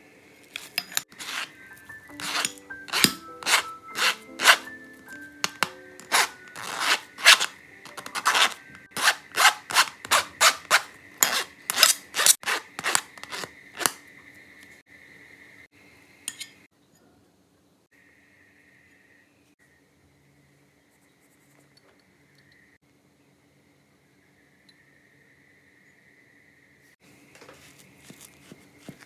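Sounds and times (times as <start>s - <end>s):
potato rasping through mesh sieve: 0.5s - 4.8s, 5.4s - 14.0s, 27.4s - 29.0s.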